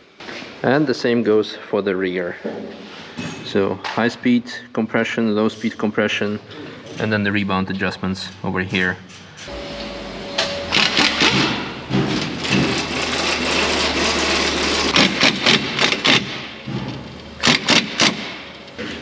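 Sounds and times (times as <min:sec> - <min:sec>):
steady low hum: 0:04.2 - 0:19.0
air impact wrench rattling: 0:10.6 - 0:19.0.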